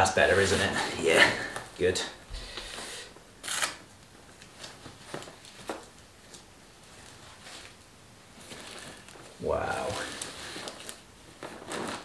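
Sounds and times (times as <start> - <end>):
soft fabric rustling: 4.5 - 12.0.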